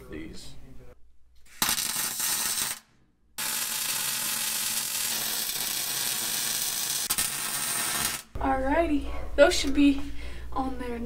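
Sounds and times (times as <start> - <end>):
welding arc frying hiss: 1.5 - 8.3.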